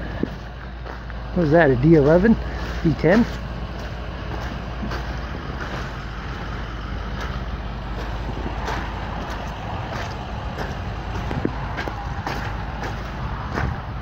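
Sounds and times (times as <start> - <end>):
footsteps on wet mud: 0.0 - 14.0
steady low rumble: 0.0 - 14.0.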